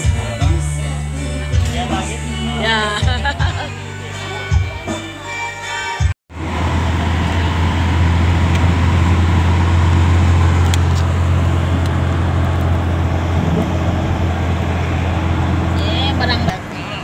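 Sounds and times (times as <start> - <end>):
music: 0.0 - 6.2
car engine drone: 6.3 - 17.0
tyre and road noise: 6.3 - 17.0.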